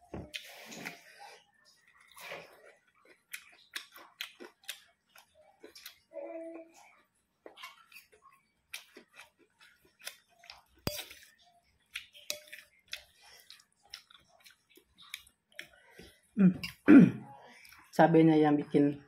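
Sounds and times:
person chewing food: 0:00.2 - 0:06.1, 0:07.3 - 0:16.9, 0:17.5 - 0:17.9
metal spoon clinking on plate: 0:12.2 - 0:12.6.

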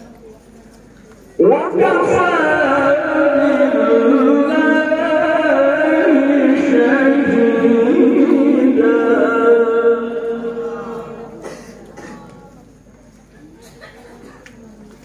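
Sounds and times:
man reciting melodically over loudspeakers: 0:01.4 - 0:12.2.

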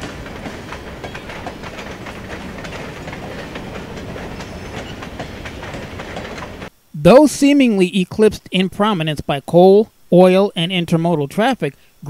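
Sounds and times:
freight train rumbling: 0:00.0 - 0:06.7
train wheels clicking over rail joints: 0:00.0 - 0:06.7.

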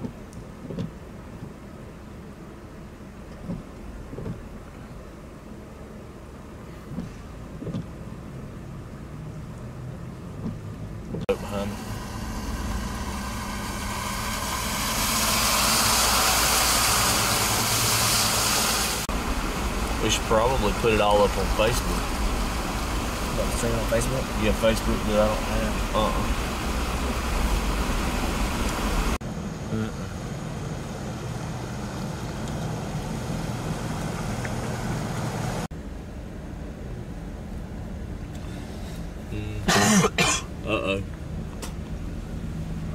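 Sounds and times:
vehicle engine idling: 0:00.0 - 0:42.9
broad rushing noise: 0:11.2 - 0:30.0.

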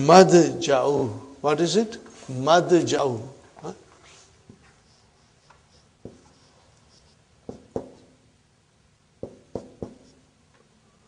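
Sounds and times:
marker tapping on whiteboard: 0:05.5 - 0:06.4, 0:07.4 - 0:08.2, 0:09.2 - 0:10.2.

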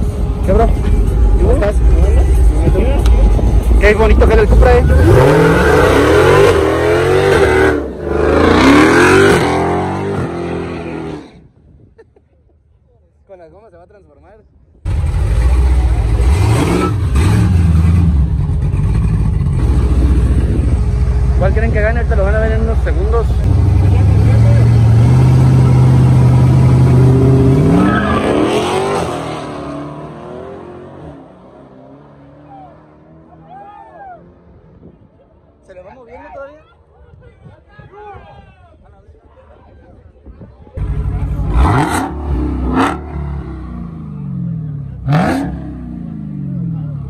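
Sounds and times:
drag car engine revving: 0:04.3 - 0:11.4, 0:14.9 - 0:33.3, 0:40.8 - 0:47.0.

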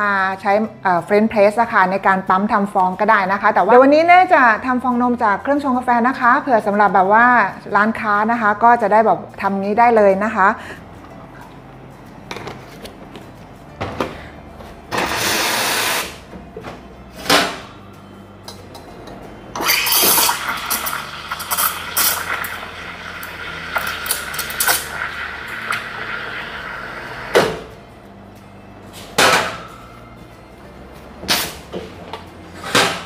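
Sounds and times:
milk steaming hiss: 0:15.0 - 0:16.2, 0:19.6 - 0:27.4.

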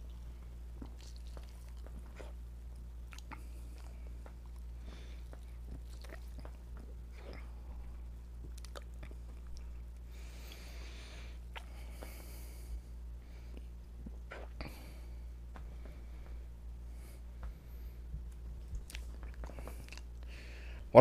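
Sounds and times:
person gulping and swallowing: 0:00.0 - 0:10.6, 0:11.5 - 0:12.2, 0:13.6 - 0:14.9, 0:18.6 - 0:20.2
steady low hum: 0:00.0 - 0:21.0.

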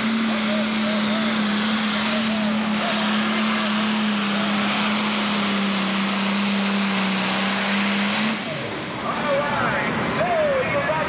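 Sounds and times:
tractor diesel engine under load: 0:00.0 - 0:11.0.

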